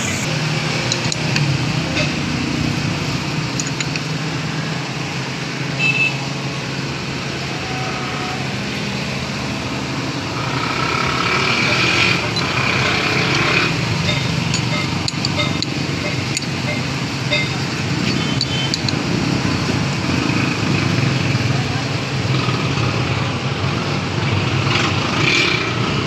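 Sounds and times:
engine and traffic noise: 0:00.0 - 0:26.0
hand tools clicking on metal: 0:11.7 - 0:19.0.

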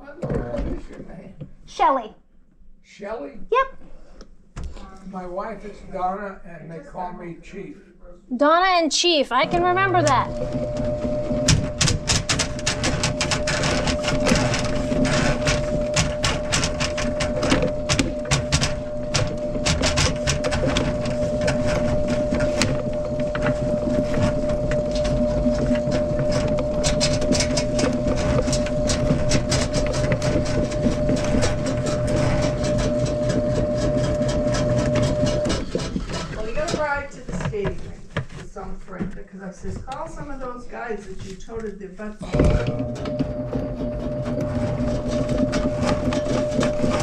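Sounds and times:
drain cleaning machine motor: 0:09.1 - 0:38.3, 0:42.2 - 0:47.0
cable clicking and rattling in pipe: 0:09.3 - 0:38.6, 0:41.5 - 0:47.0.

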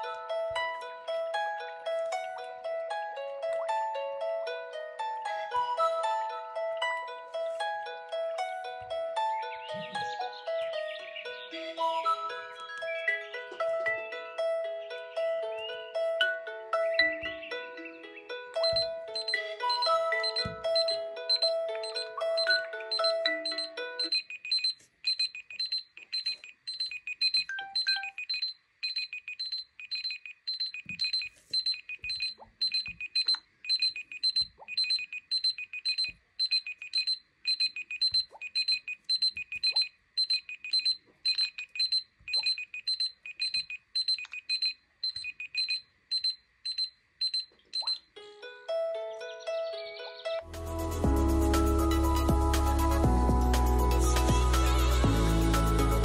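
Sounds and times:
melodic alarm tune: 0:00.0 - 0:48.0
smartphone alarm beeping: 0:18.6 - 0:48.1.

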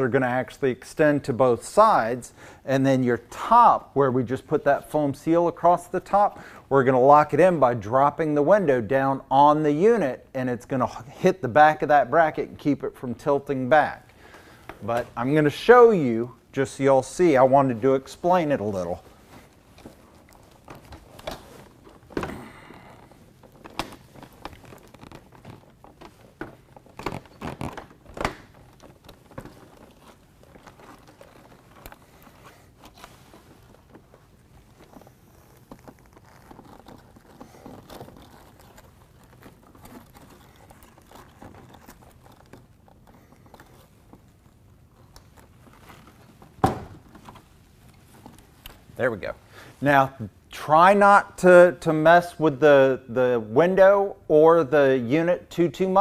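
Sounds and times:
plastic rubbing: 0:11.0 - 0:50.5.

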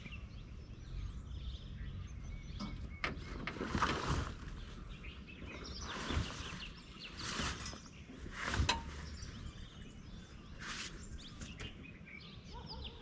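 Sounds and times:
birds chirping: 0:00.0 - 0:13.0
canvas rustling and scraping: 0:02.9 - 0:11.8.

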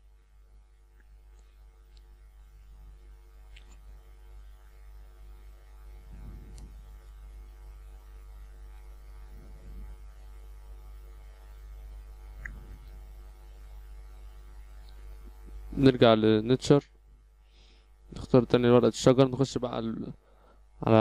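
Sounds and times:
low electrical mains hum: 0:00.0 - 0:21.0.

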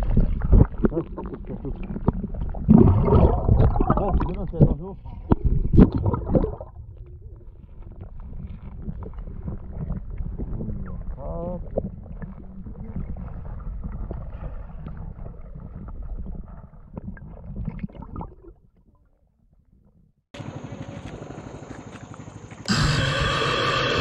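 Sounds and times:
underwater clicks: 0:00.0 - 0:07.2
underwater rumble of moving water: 0:00.0 - 0:18.7
pulsing hiss: 0:22.7 - 0:24.0.

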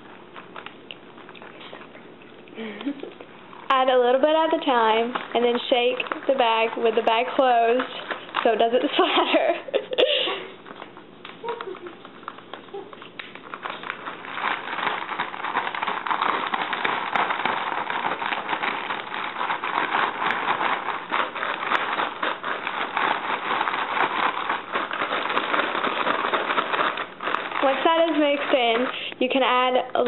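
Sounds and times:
plastic bag crinkling: 0:00.0 - 0:30.0
cereal rattling in bag: 0:02.9 - 0:30.0.

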